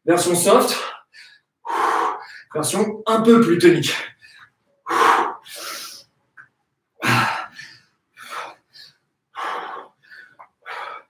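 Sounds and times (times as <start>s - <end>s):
man breathing forcefully: 1.0s - 2.5s, 4.1s - 6.1s, 7.0s - 11.0s.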